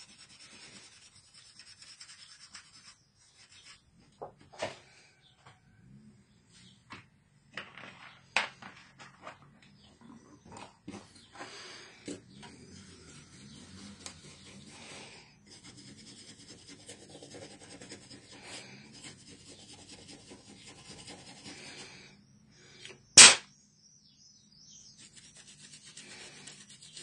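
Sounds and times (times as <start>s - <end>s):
paintbrush sweeping wooden desk: 0.0s - 3.8s, 12.3s - 21.8s.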